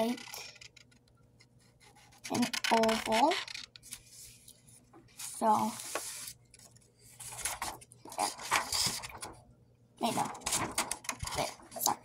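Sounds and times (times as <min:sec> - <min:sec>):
paper rustling: 0:03.2 - 0:09.4, 0:10.1 - 0:11.9.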